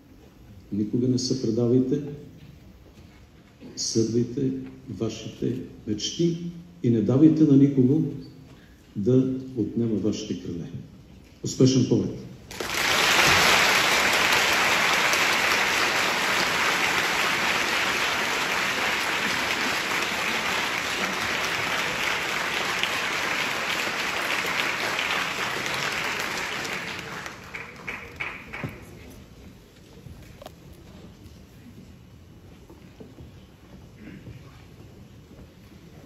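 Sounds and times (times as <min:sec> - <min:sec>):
audience applauding: 0:12.5 - 0:29.1.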